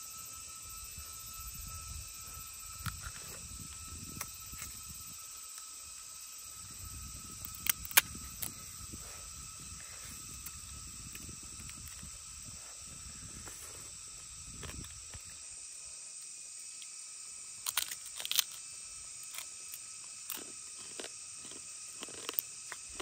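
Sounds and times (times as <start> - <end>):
forest insects buzzing: 0.0 - 23.0
crab shell cracking: 17.6 - 18.6
chewing: 20.2 - 23.0.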